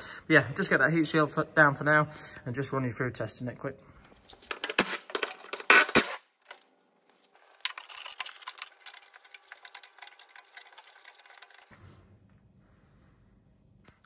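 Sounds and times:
rapid clicking and rattling: 7.3s - 11.8s
cordless ratchet spinning: 7.4s - 11.7s.

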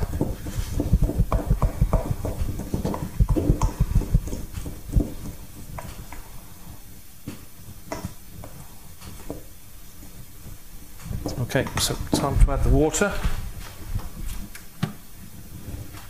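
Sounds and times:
wooden spoon knocking in metal bowl: 0.0s - 6.3s, 7.2s - 9.5s, 11.1s - 12.4s.

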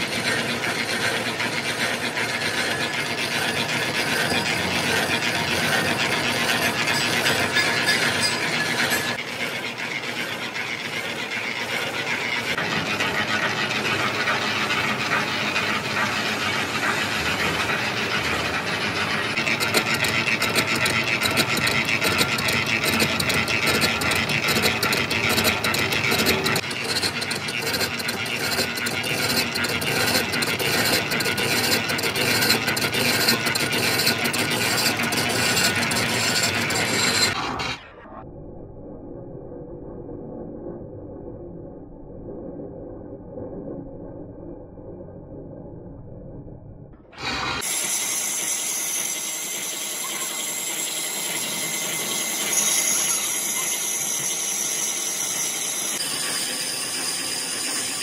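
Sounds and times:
lathe gearing rattle: 0.0s - 37.8s
metal-cutting scrape: 0.0s - 38.1s, 47.2s - 58.0s.

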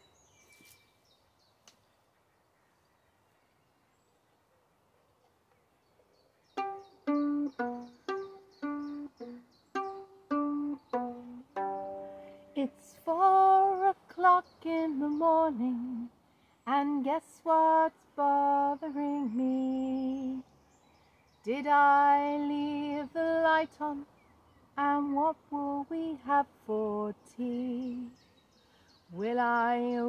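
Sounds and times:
violin plucked pizzicato: 6.6s - 12.8s.

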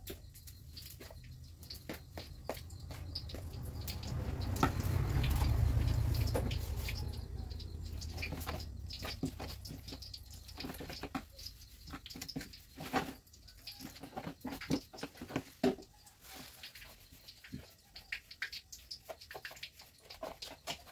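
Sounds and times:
hand kneading food squishing: 0.2s - 13.4s
low rumble: 2.6s - 10.5s.

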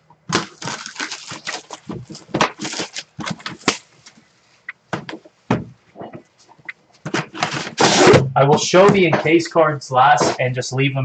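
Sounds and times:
packaging crinkling and rustling: 0.3s - 4.2s.

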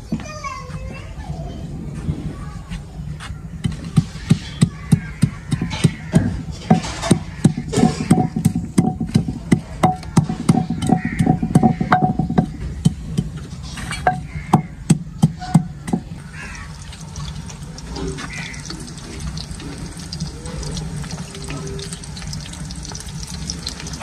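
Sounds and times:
utensil knocking on metal pot: 3.7s - 16.5s.

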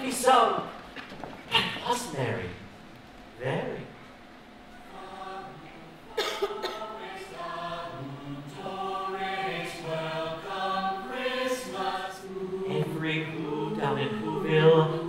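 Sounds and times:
choir singing a cappella: 4.7s - 15.0s.

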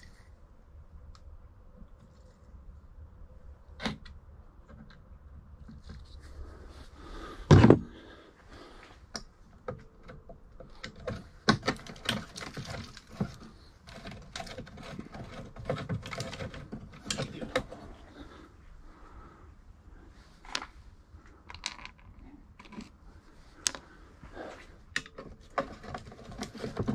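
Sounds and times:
loud thump: 7.5s - 7.9s.

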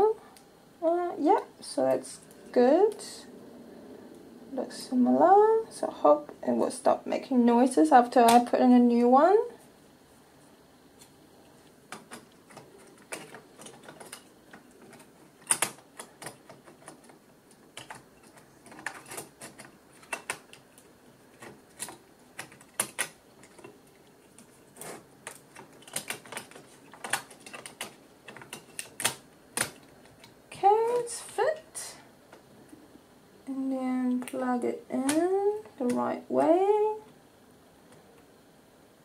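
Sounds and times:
fingers handling plastic and metal parts: 11.9s - 31.1s.

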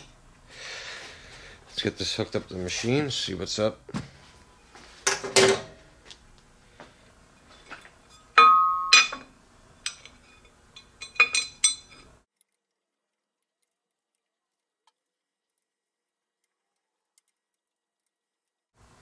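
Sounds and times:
metal clinks and knocks: 7.4s - 12.1s
loud ringing metal clank: 8.1s - 9.3s.

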